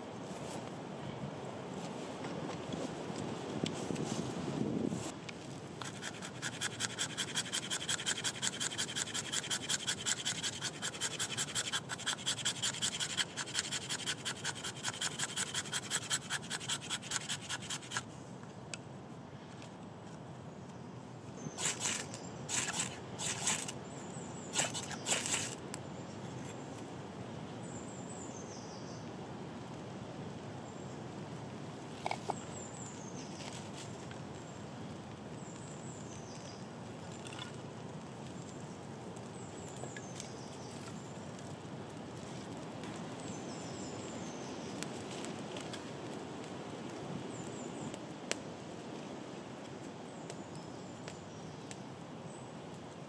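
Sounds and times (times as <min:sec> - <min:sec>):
woodland background noise: 0:00.0 - 0:53.0
small bird calling: 0:21.4 - 0:25.6.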